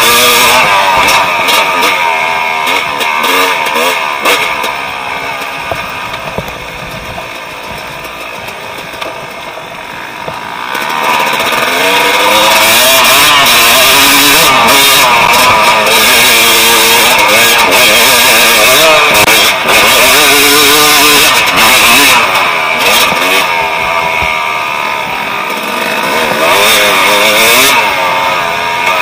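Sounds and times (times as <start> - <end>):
dirt bike engine revving: 0.0 - 29.0
wind on microphone: 5.7 - 7.8.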